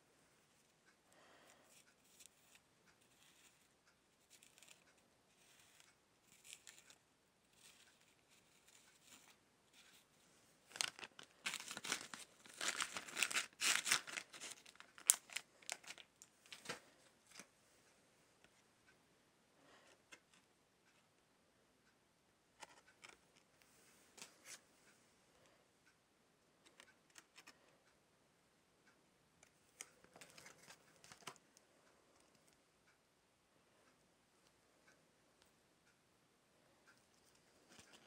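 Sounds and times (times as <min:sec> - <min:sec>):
plastic bag crinkling: 0:10.7 - 0:16.7.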